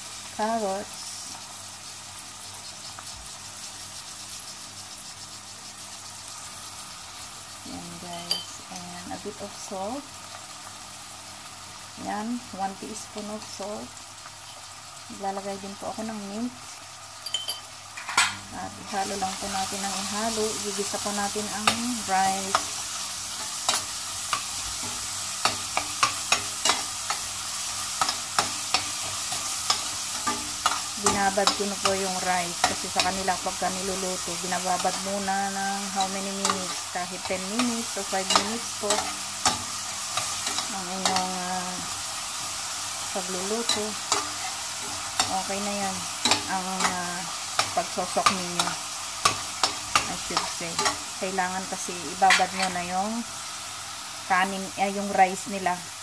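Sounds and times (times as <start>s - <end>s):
onion and carrot sizzling in oil: 0.0s - 56.0s
metal spoon stirring: 36.0s - 39.6s.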